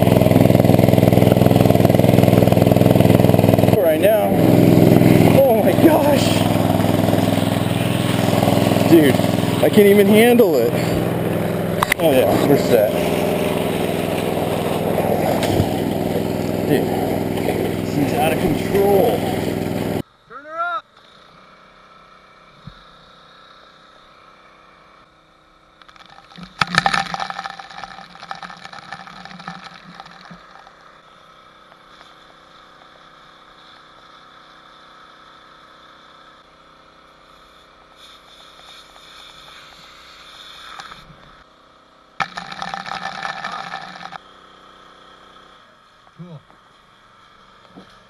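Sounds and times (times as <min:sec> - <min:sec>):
water jet rushing: 0:00.0 - 0:20.0
water pump engine running: 0:00.0 - 0:20.0, 0:25.9 - 0:48.0
water spray splashing: 0:00.0 - 0:20.0, 0:37.3 - 0:41.2.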